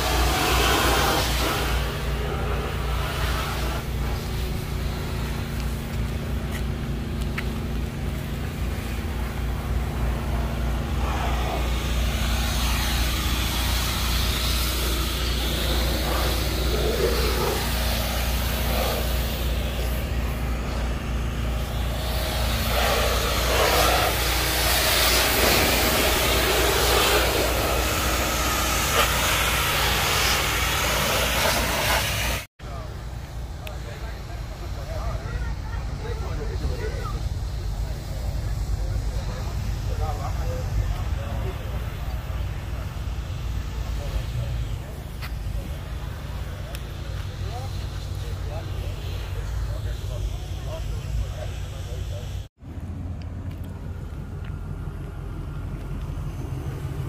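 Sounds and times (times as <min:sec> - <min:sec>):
car engine rumbling: 0:00.0 - 0:57.0.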